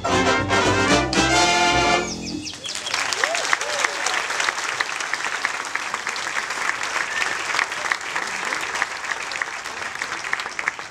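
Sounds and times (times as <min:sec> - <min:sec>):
audience applauding: 0:02.4 - 0:10.9.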